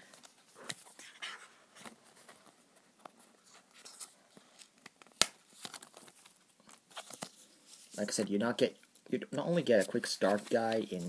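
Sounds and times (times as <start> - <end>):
cardboard and plastic rustling: 9.8 - 11.0.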